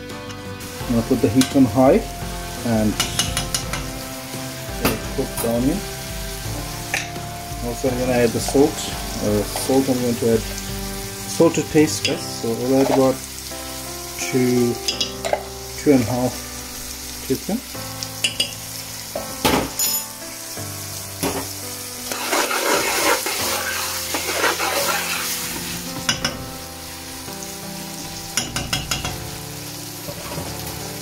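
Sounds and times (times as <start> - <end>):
onions sizzling in hot oil: 0.0 - 31.0
metal spoon stirring onions: 0.6 - 4.0, 11.2 - 13.9, 14.6 - 15.6, 22.0 - 26.4, 28.2 - 29.2
spoon knocking against pot: 3.0 - 3.9, 28.4 - 29.2.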